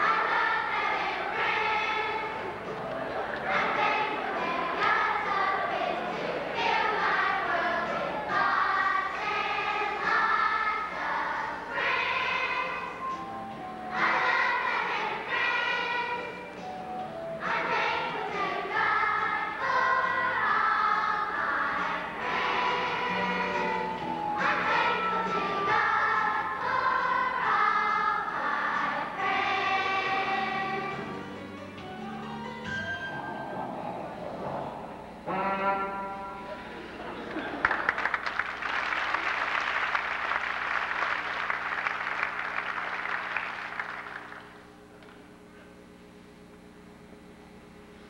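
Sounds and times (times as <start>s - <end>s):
quiet instrumental backing: 0.0s - 37.3s
children's choir singing: 0.0s - 37.6s.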